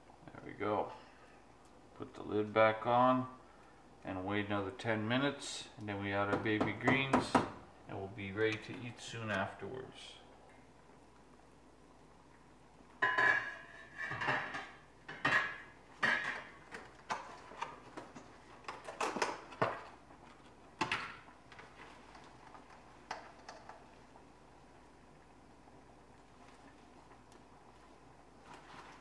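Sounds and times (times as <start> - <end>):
metal pot and lid clanking: 13.0 - 16.6.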